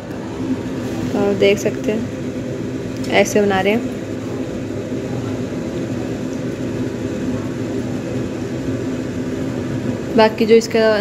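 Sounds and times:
electric fan humming: 0.0s - 11.0s.

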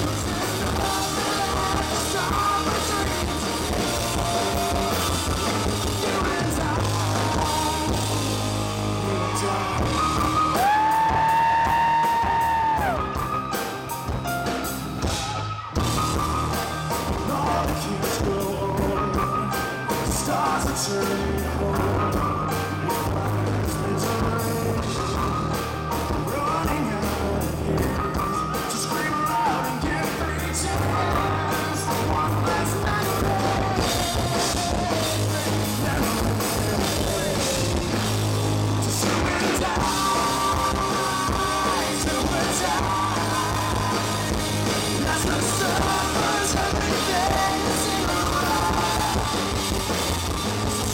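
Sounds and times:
man singing: 0.0s - 13.2s, 16.0s - 50.9s
rock band playing live: 0.0s - 50.9s.

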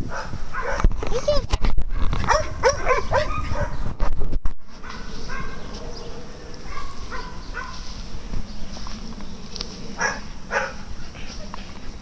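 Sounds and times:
dogs barking: 0.0s - 0.9s, 1.9s - 3.8s, 4.8s - 8.0s, 9.9s - 11.6s
high-pitched dog yips: 1.9s - 3.8s.

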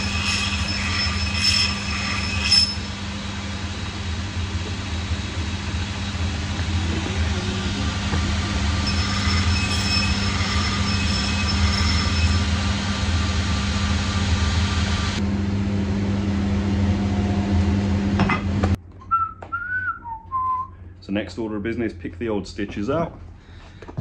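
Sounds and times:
axe blade grinding on wheel: 0.0s - 3.0s, 7.6s - 12.5s
machine motor humming: 2.0s - 15.2s
brief whistle: 19.1s - 20.8s.

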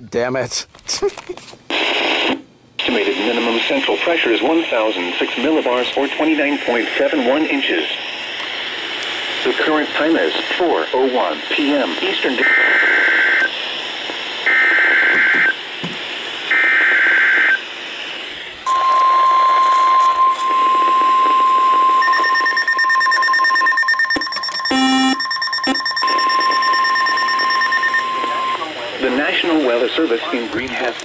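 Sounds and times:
buzzing data bursts: 18.6s - 29.3s
brief beep: 18.7s - 28.6s
steady alert tone: 22.0s - 28.6s.

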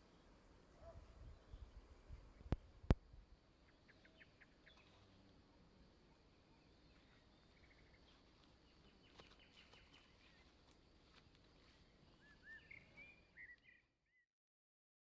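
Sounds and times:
distant bird chirps: 3.5s - 10.6s, 11.6s - 14.0s.

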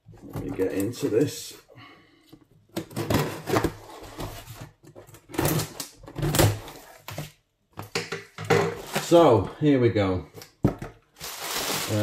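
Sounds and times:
scraping and tearing: 11.2s - 12.0s.

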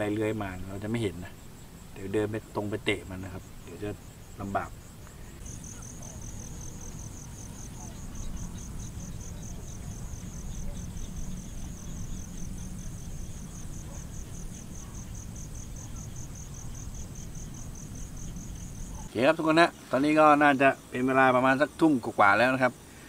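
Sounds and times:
insect chirping: 0.0s - 23.0s
low steady rumble: 5.4s - 19.1s.

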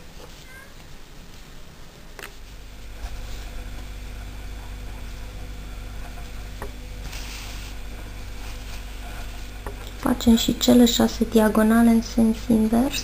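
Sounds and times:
low mechanical hum: 0.0s - 13.0s
faint rustle: 7.0s - 9.6s.

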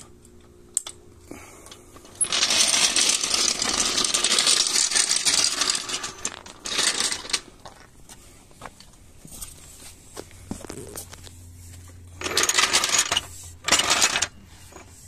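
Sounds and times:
floor jack rattling on pavement: 2.1s - 7.5s.

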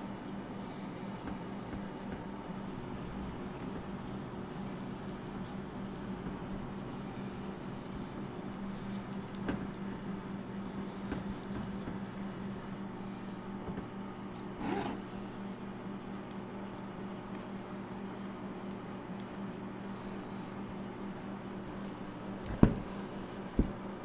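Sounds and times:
steady low hum: 0.0s - 24.0s
light knocks on cutting board: 22.5s - 22.9s.

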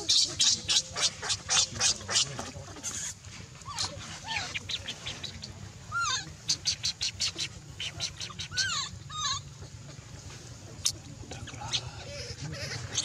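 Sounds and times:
animal squeals: 5.9s - 6.3s, 8.2s - 9.5s
high-pitched animal chirps and squeaks: 5.9s - 9.5s.

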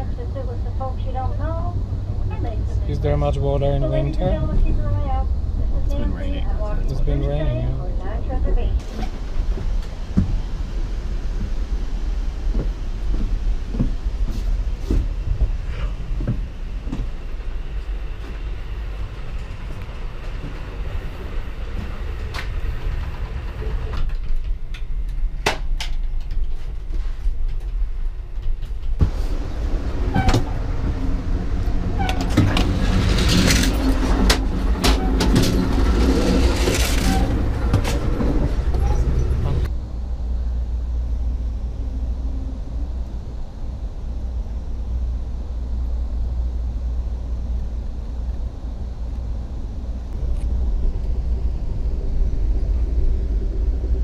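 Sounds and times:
train clattering: 0.0s - 39.7s
train wheels rumbling on track: 0.0s - 54.0s.

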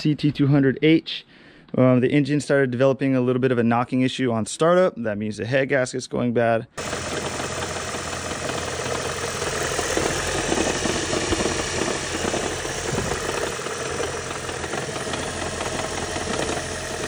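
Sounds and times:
car engine running with a knock: 6.8s - 17.0s.

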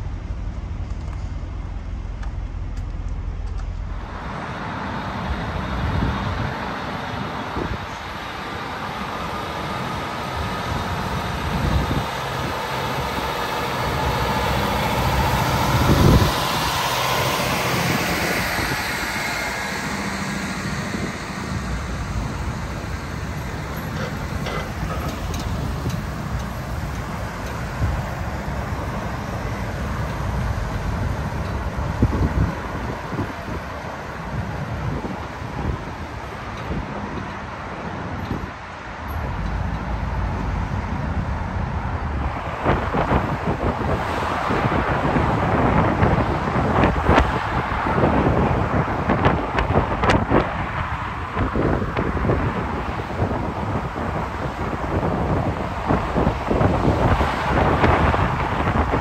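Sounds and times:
road traffic: 0.0s - 59.0s
vehicle passing close: 0.0s - 59.0s.

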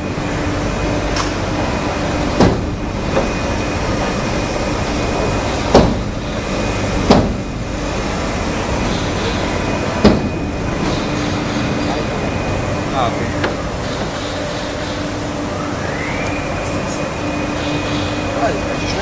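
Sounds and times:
workshop hall noise: 0.0s - 19.0s
sharp knocks: 2.4s - 3.4s, 5.7s - 6.1s, 7.0s - 7.5s, 10.0s - 10.4s.

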